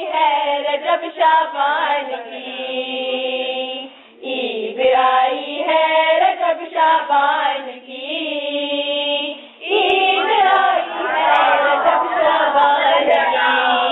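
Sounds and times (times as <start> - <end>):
girls singing devotional song: 0.0 - 13.9.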